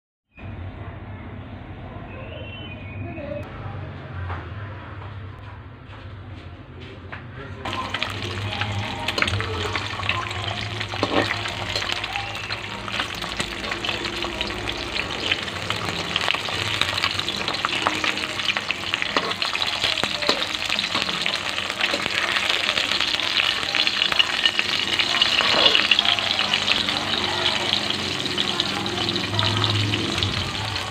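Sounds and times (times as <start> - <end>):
egg frying in hot oil: 7.7 - 30.9.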